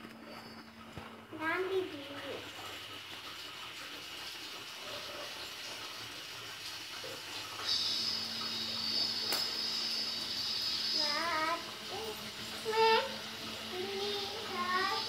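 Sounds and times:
steady hiss: 7.0s - 15.0s.

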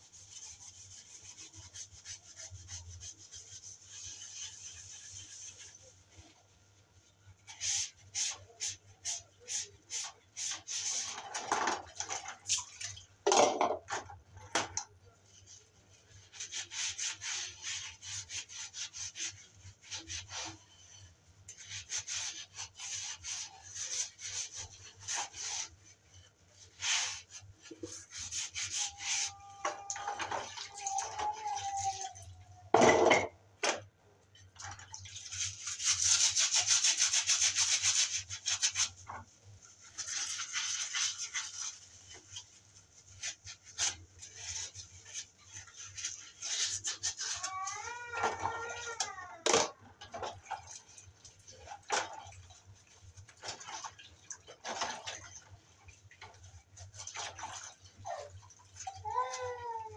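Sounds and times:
sponge scrubbing utensils: 0.0s - 33.8s, 34.4s - 59.9s
crockery knocking: 32.8s - 33.3s.

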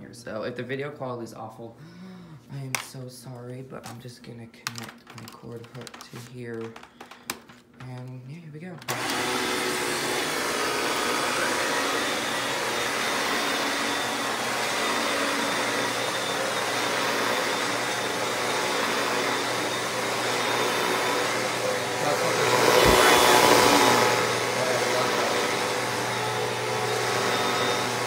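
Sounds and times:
vacuum cleaner running on carpet: 8.9s - 28.0s.

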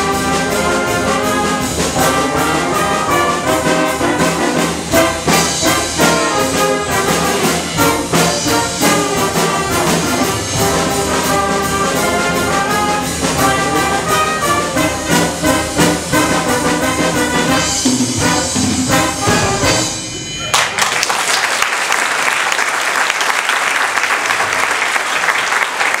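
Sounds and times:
wind band playing: 0.0s - 20.8s
audience applause: 20.5s - 26.0s.

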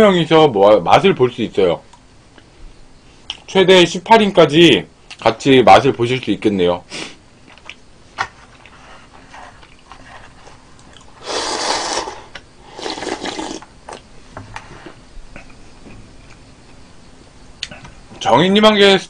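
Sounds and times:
person slurping broth: 11.2s - 13.7s.

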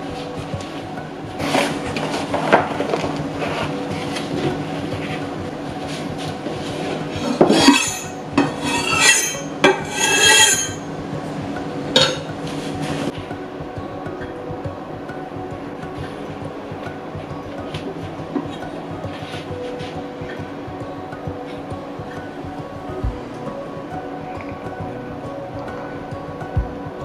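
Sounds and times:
utensils scraping dishes: 1.4s - 10.9s
utensils knocking dishes: 5.9s - 10.9s, 12.0s - 13.1s.

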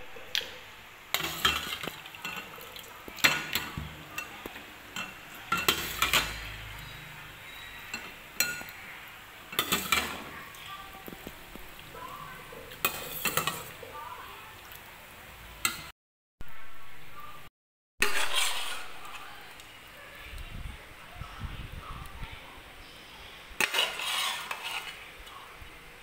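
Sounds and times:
metal ladle clinking against pot: 5.0s - 8.8s, 9.5s - 10.2s.

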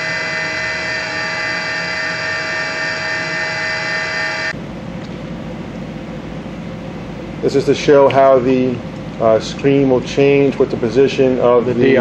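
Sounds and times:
router spindle high whine: 0.0s - 4.7s
low rushing hum: 0.0s - 12.0s.

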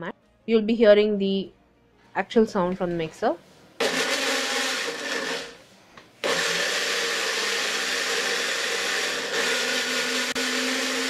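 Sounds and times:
mixer grinder grinding: 3.8s - 5.6s, 6.2s - 11.0s.

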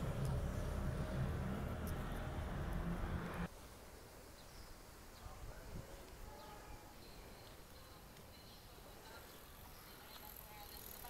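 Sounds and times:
street noise rumble: 0.0s - 3.5s.

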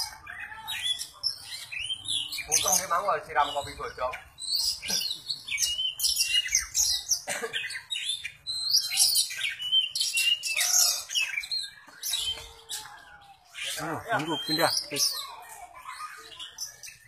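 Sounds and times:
magpie-robin singing: 0.0s - 17.0s.

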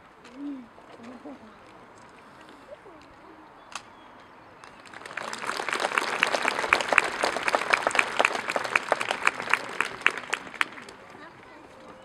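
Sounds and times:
audience applauding: 4.6s - 11.3s.

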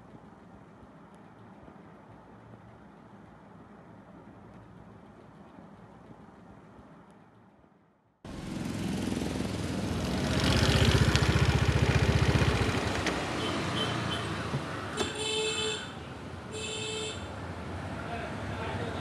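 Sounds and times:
street traffic: 0.0s - 19.0s
motor scooter engine running: 8.3s - 13.5s
vehicle horn toot: 15.0s - 17.3s.

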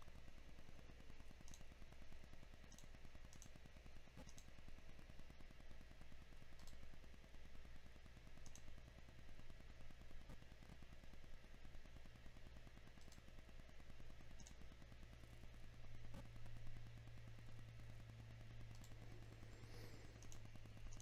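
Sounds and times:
steady low hum: 0.0s - 21.0s
faint computer mouse clicks: 1.4s - 1.7s, 2.6s - 3.6s, 4.2s - 4.6s, 6.5s - 6.8s, 8.4s - 8.7s, 12.9s - 13.3s, 14.4s - 14.7s, 18.7s - 21.0s.

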